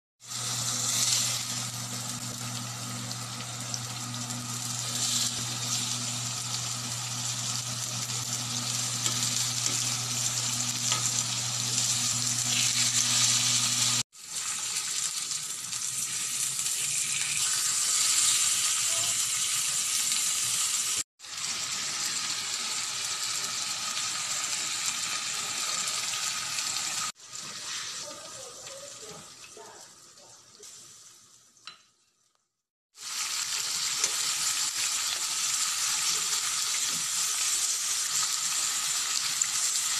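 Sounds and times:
meat sizzling in oil: 0.2 - 32.3, 32.9 - 39.9.

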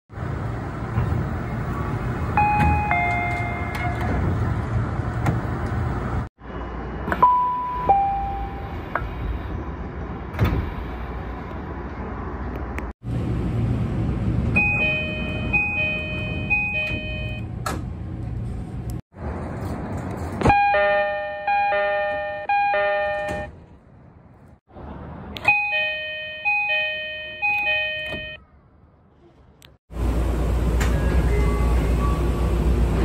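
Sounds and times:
train humming at platform: 0.1 - 19.3, 29.3 - 33.0
train doors shutting with knock: 2.4 - 4.5, 10.3 - 10.9.

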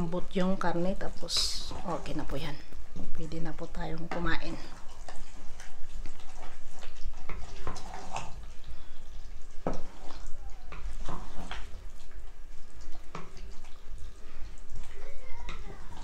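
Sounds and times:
thick stew squelching: 0.5 - 16.0
spoon scraping pot: 1.2 - 2.5.

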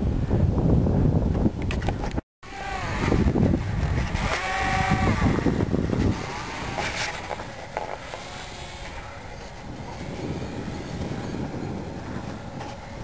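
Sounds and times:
model airplane motor buzzing: 2.4 - 13.0.

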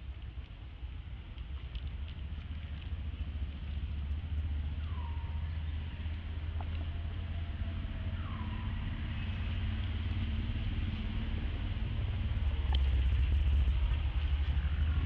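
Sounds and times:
steady low rumble: 0.0 - 15.0
faint clicks: 1.3 - 3.8, 12.5 - 14.6.

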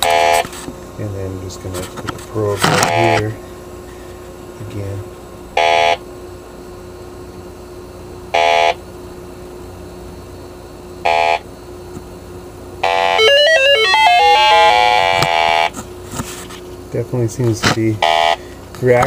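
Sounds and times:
warbling electronic alarm: 0.0 - 0.5, 2.8 - 3.3, 5.6 - 6.0, 8.3 - 8.8, 11.0 - 11.5, 12.8 - 15.8, 18.0 - 18.5.

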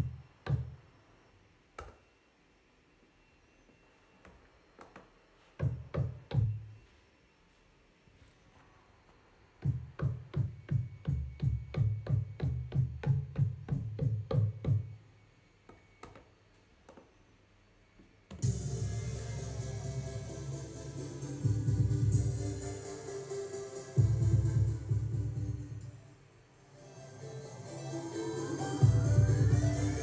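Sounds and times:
deep drum machine hits: 18.4 - 23.0.

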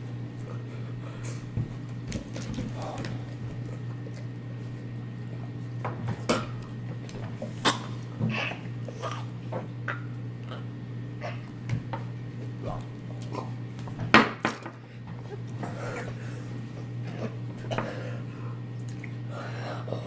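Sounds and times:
steady low hum: 0.0 - 20.0
people gasping and whimpering: 15.6 - 18.3.

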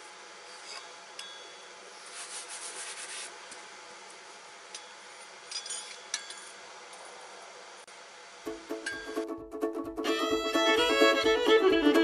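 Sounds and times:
rubbing scraping sound: 2.0 - 3.4.

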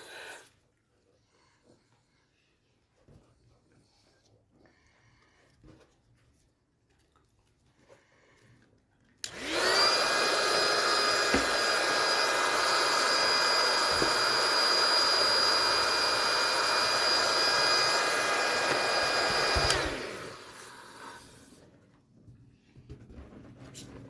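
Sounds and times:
electric balloon pump whining: 9.2 - 21.6.

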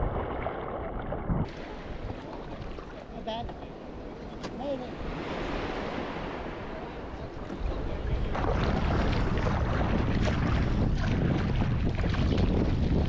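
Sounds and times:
wind buffeting microphone: 0.0 - 3.0, 5.0 - 13.0
ocean water washing: 0.0 - 13.0.

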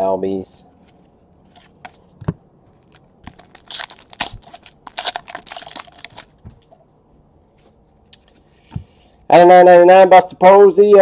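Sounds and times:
foil wrapper crinkling and tearing: 2.8 - 6.4.

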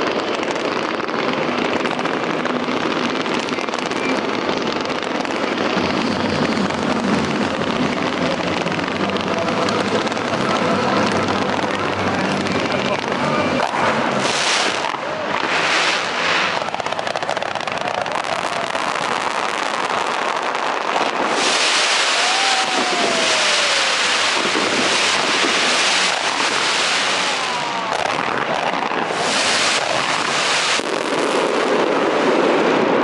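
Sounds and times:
fireworks hissing and crackling: 0.0 - 33.0
falling firework whistle: 13.6 - 32.6
short rising firework whistles: 14.2 - 20.0, 20.6 - 28.3, 29.0 - 31.6.

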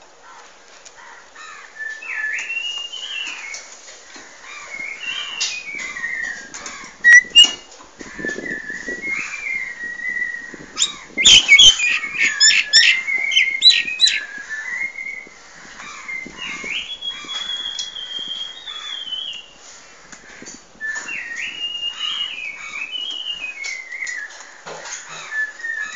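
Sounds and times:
myna whistling: 7.0 - 7.6, 8.4 - 15.2
sharp bird clicks: 7.1 - 7.6, 10.8 - 14.3.

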